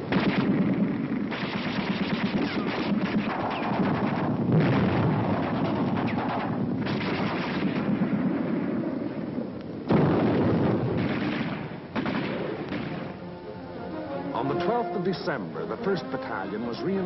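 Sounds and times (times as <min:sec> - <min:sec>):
heavy artillery blasts: 0:00.0 - 0:13.2
rapid gunfire: 0:00.1 - 0:08.4, 0:09.9 - 0:13.1.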